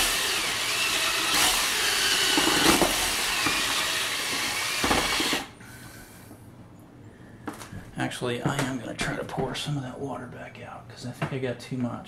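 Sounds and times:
cordless drill mixing compound: 0:00.0 - 0:05.6.

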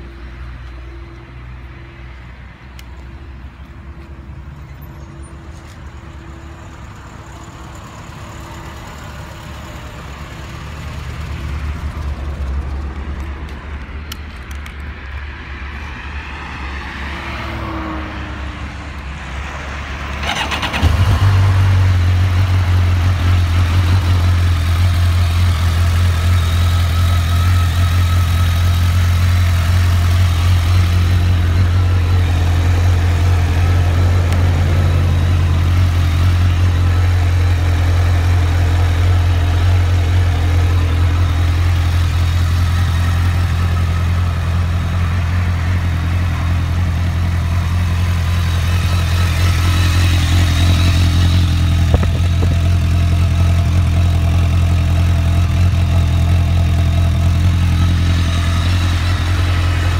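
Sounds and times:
motorcycle engine idling: 0:06.4 - 0:13.3, 0:20.2 - 0:59.9
engine starter cranking: 0:20.2 - 0:21.3.

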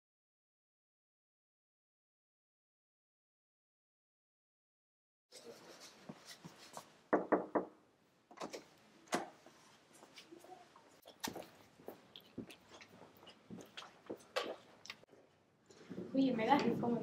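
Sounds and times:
knock on a door: 0:07.1 - 0:07.7.

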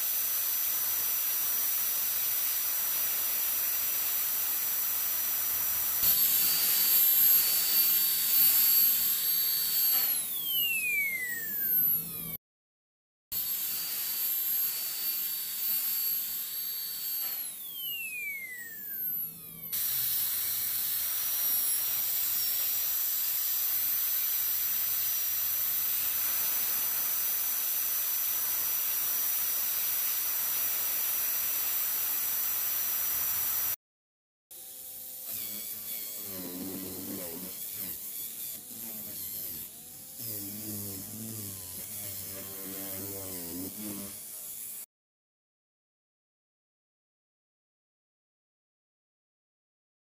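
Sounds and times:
dental drill whining: 0:00.0 - 0:12.4, 0:13.4 - 0:33.8, 0:34.5 - 0:44.9
polishing disc buzzing: 0:05.8 - 0:12.3, 0:34.6 - 0:44.8.

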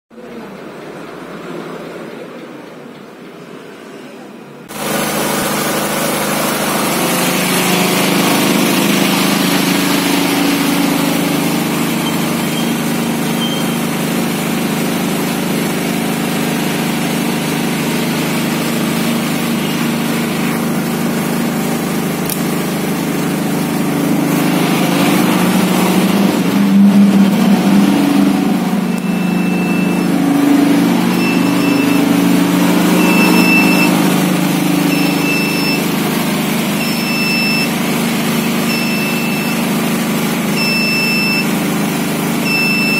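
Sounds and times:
generator engine running: 0:04.6 - 0:42.9
high-pitched alarm buzzer beeps: 0:12.0 - 0:13.8, 0:28.9 - 0:30.2, 0:31.1 - 0:32.2, 0:32.9 - 0:34.0, 0:34.9 - 0:35.9, 0:36.8 - 0:37.8, 0:38.6 - 0:39.7, 0:40.6 - 0:41.5, 0:42.4 - 0:42.9.

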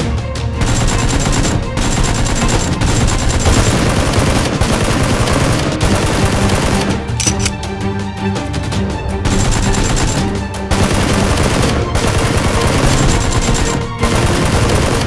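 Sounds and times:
rapid automatic gunfire effects: 0:00.6 - 0:06.9, 0:09.3 - 0:15.0.

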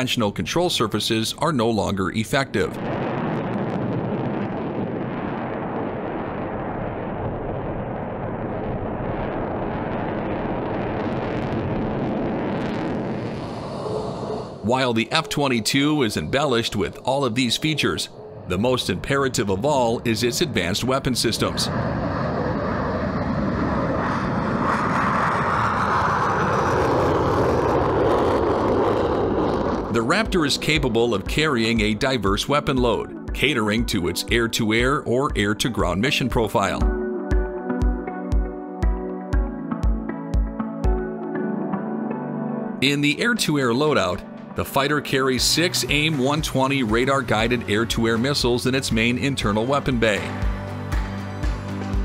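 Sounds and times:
jet engine roar: 0:02.4 - 0:34.2, 0:42.8 - 0:50.6
faint crackle: 0:02.8 - 0:14.6, 0:21.4 - 0:30.0.

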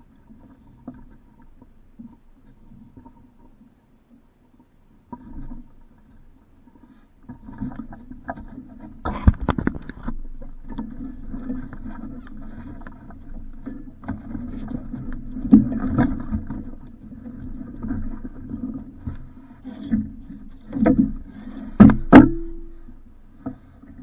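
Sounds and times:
water sloshing against boat hull: 0:00.0 - 0:24.0
sharp knocks on hull: 0:21.8 - 0:22.8.

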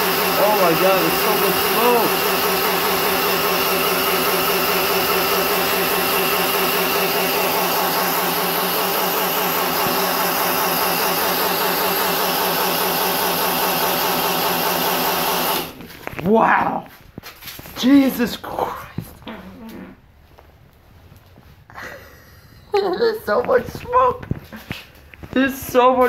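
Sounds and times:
electric motor whining: 0:00.0 - 0:15.9
tyre spinning on tiled floor: 0:00.0 - 0:17.8.

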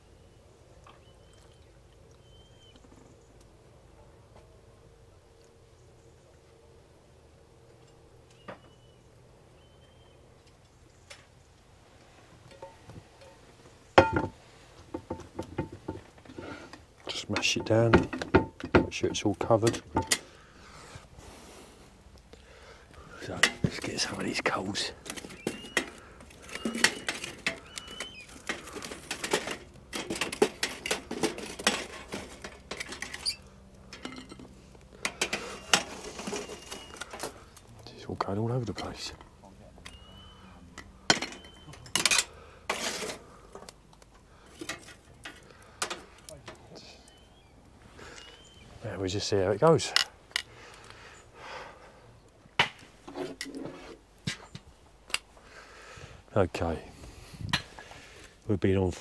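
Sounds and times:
hot coals clinking and scraping: 0:09.8 - 0:59.0
soft rubbing and scraping: 0:35.3 - 0:37.4, 0:42.7 - 0:43.4, 0:52.9 - 0:54.6.

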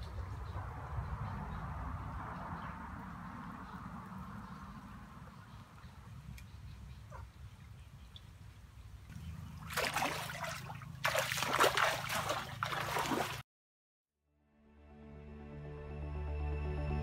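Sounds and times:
feet splashing in shallow water: 0:09.1 - 0:13.4.

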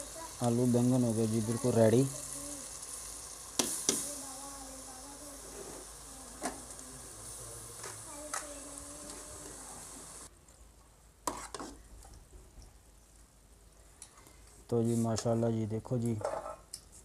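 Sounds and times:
curry sizzling in pot: 0:00.0 - 0:10.3, 0:11.2 - 0:11.8.

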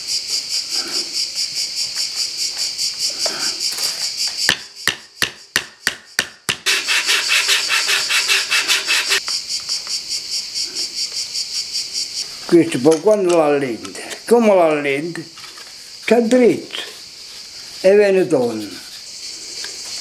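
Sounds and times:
insects chirping: 0:00.0 - 0:20.0
small hammer tapping wood: 0:04.5 - 0:06.6.

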